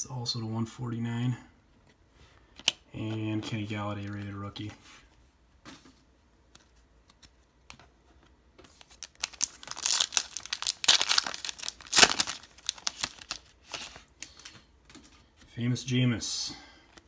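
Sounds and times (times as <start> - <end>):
wrapper crinkling and tearing: 8.7 - 14.5.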